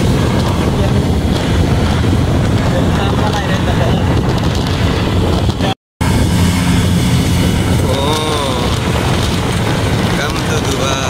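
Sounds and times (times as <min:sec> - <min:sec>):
auto-rickshaw engine and road noise: 0:00.0 - 0:11.0
short pitched bending sound: 0:04.8 - 0:10.2.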